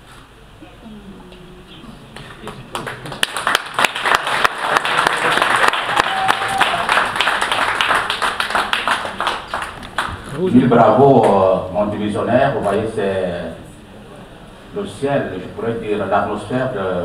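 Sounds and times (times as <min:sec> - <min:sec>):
audience applauding: 0:02.2 - 0:10.4.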